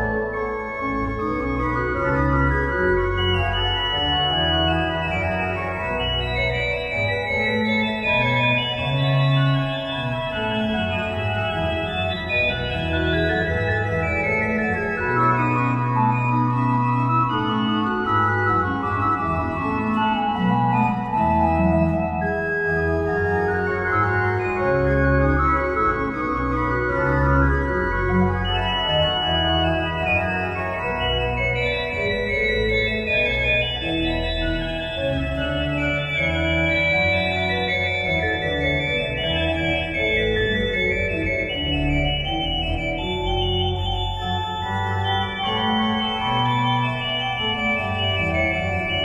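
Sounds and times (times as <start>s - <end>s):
organ music: 0.0s - 49.0s.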